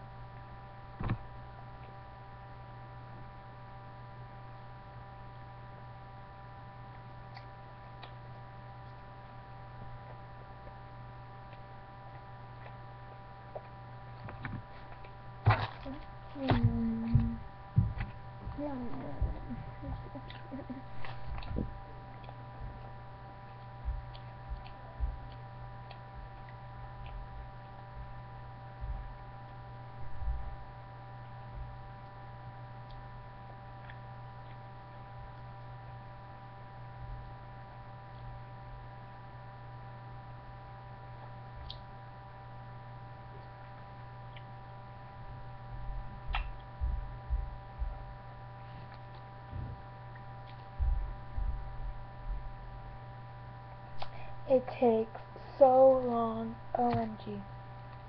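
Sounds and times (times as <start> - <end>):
electrical hum with high whine: 0.0 - 58.0
soft low thumps: 15.4 - 21.9, 22.5 - 23.0, 23.8 - 25.4, 28.8 - 29.2, 30.0 - 30.7, 45.7 - 48.2, 49.5 - 49.9, 50.7 - 52.9.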